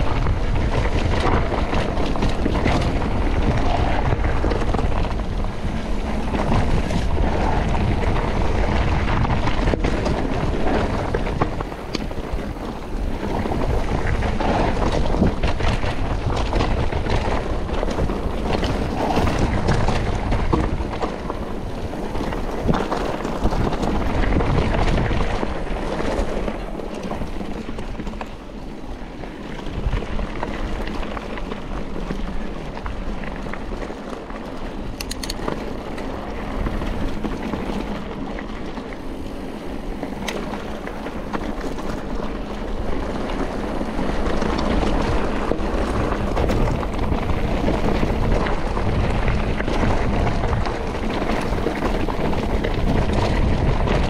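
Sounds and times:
bike tyres rumbling: 0.0 - 54.0
wind over microphone: 0.0 - 54.0
sharp clicks: 35.0 - 35.5.

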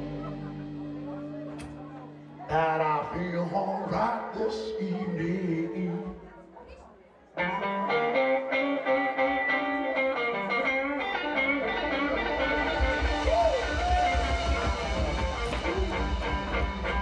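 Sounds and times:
bass and drums: 0.0 - 3.3, 11.0 - 17.0
electric guitar riff: 0.0 - 6.2, 7.4 - 17.0.

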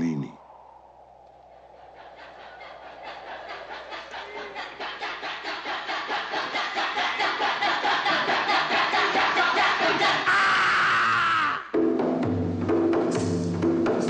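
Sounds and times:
rhythmic pulsing trailer music: 11.7 - 14.0.

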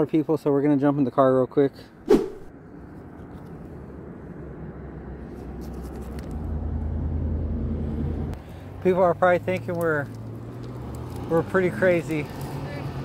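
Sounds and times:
vehicle passing on road: 3.7 - 13.0.

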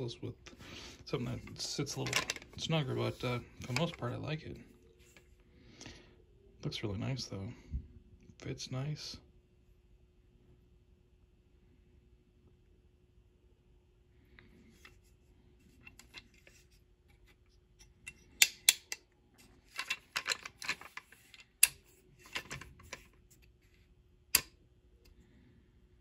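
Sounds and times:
metallic clicks and knocks: 1.9 - 2.6, 19.7 - 23.1.

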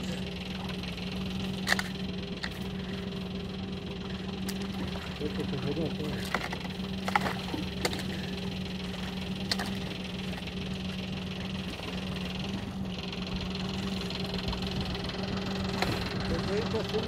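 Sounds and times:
outboard motor idling: 0.0 - 17.0.

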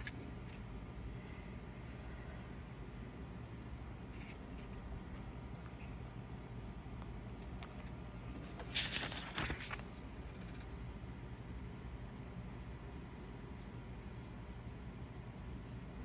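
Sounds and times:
notebook page turning: 7.5 - 10.7.

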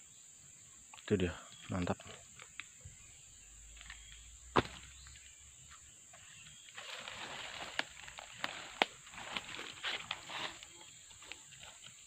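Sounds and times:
high insect drone: 0.0 - 12.0
footsteps in dry leaves: 6.2 - 12.0.

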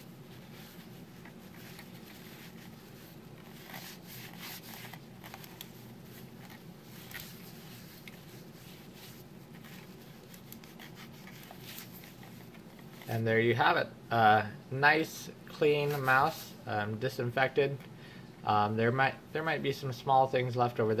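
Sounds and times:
cloth wiping plastic: 0.0 - 13.2, 15.8 - 16.6.

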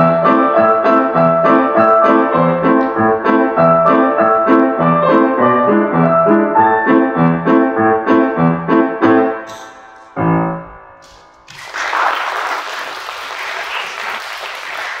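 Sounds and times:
grand piano playing: 0.0 - 11.6
audience applauding: 11.4 - 15.0.

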